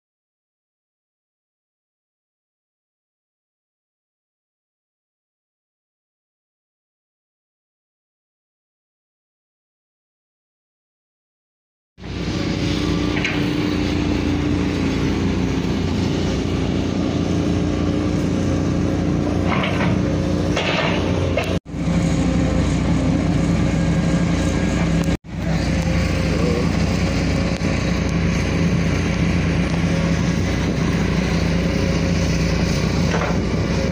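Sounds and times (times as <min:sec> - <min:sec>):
road noise: 0:12.0 - 0:33.9
vehicle engine drone: 0:12.0 - 0:33.9.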